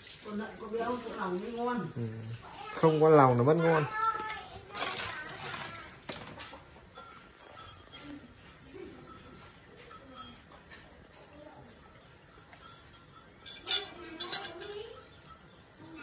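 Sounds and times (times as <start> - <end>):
insect chirring: 0.0 - 16.0
sharp clatters: 3.9 - 7.9.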